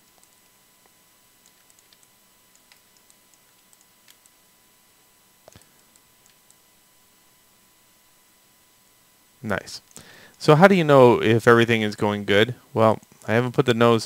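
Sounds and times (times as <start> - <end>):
mouse and keyboard clicks: 1.4 - 4.4.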